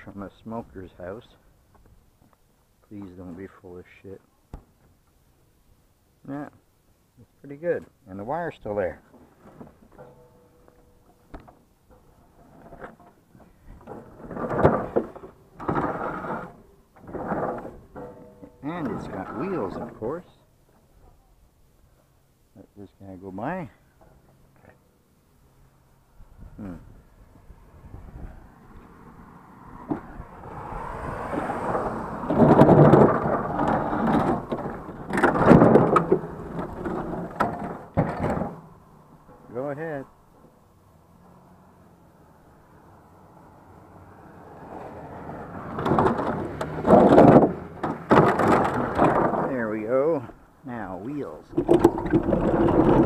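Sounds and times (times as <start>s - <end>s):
wheels rumbling over concrete: 8.5s - 22.2s, 26.4s - 53.0s
refrigerator scraping and rattling: 13.8s - 20.3s, 31.3s - 38.7s, 45.6s - 49.9s, 51.1s - 53.0s.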